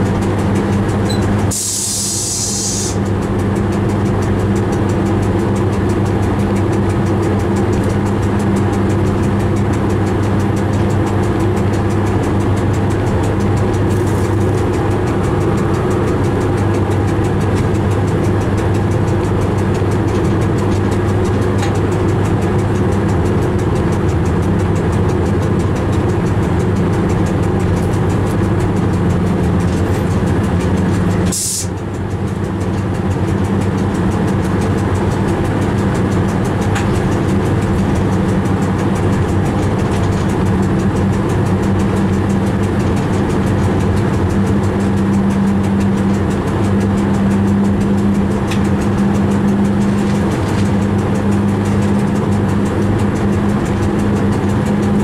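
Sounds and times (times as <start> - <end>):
train running from inside cab: 0.0 - 55.0
sharp air hiss: 1.5 - 3.0, 31.3 - 31.7.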